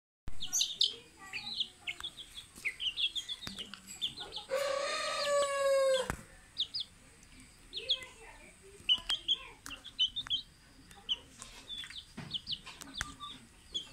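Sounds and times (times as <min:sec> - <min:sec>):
chicks peeping: 0:00.3 - 0:13.9
rooster crowing: 0:04.5 - 0:06.1.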